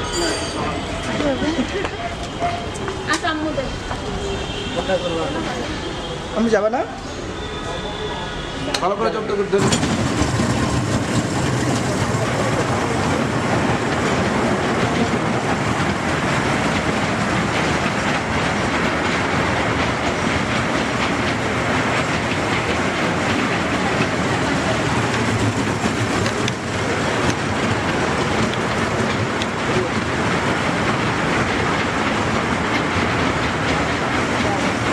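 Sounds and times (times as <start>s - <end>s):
train wheels rattling on rails: 0.0s - 34.9s.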